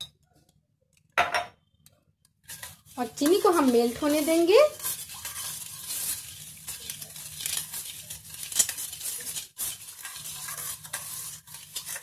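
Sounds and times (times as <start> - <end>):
metal spoon stirring in pan: 2.4 - 12.0.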